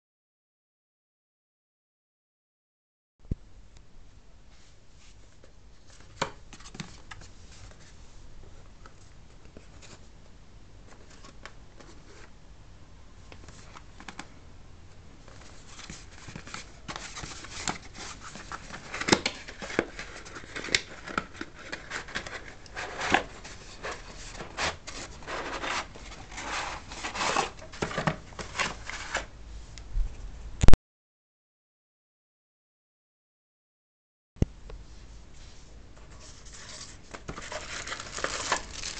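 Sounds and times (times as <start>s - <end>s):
cardboard scraping and rubbing: 15.5s - 29.3s, 36.1s - 38.9s.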